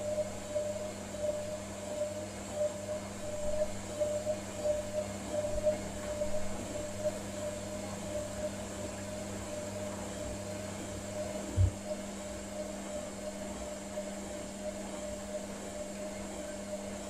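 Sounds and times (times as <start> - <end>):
washing machine drum humming: 4.7 - 17.0
dull low thump: 11.5 - 11.8.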